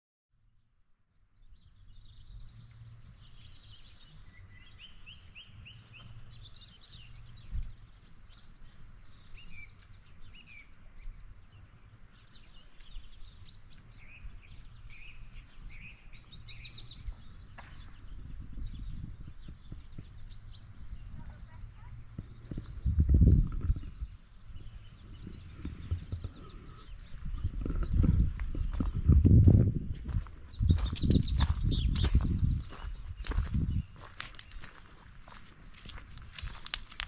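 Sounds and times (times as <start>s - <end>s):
small birds chirping: 0.4s - 37.0s
steady low rumble: 20.7s - 37.0s.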